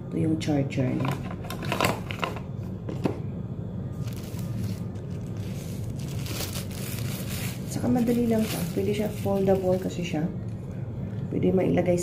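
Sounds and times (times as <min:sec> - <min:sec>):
steady low hum: 0:00.0 - 0:12.0
plastic bag crinkling: 0:04.0 - 0:10.0.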